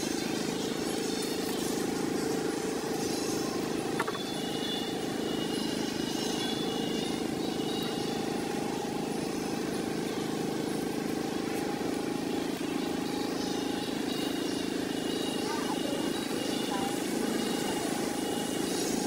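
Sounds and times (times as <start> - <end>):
outdoor background hum: 0.0 - 19.0.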